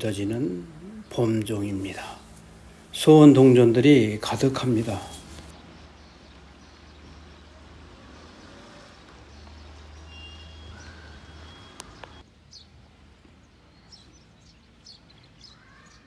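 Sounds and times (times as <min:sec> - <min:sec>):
bird chirps: 0:04.9 - 0:12.7.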